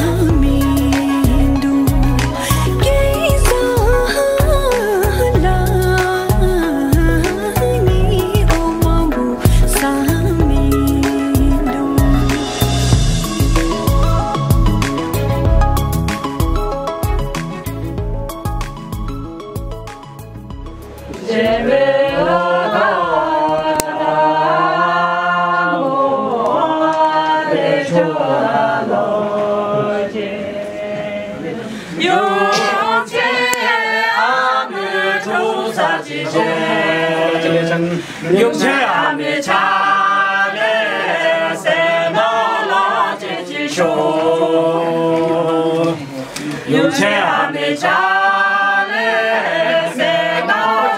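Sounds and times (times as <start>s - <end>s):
unaccompanied singing voices: 0.0s - 13.9s, 21.1s - 50.9s.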